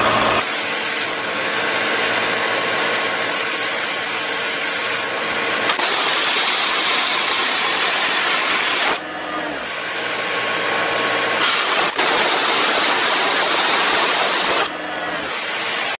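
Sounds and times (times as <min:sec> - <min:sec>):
compressed air blasting hiss: 0:11.4 - 0:14.7.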